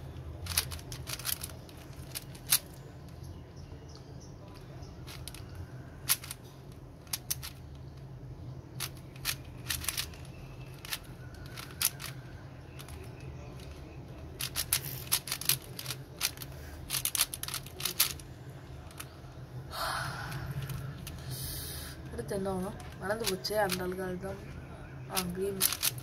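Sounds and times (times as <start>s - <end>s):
low steady hum: 0.0s - 26.0s
puzzle cube clicking: 0.1s - 2.8s, 4.5s - 6.4s, 7.0s - 8.0s, 8.7s - 19.2s, 22.7s - 24.0s, 25.2s - 26.0s.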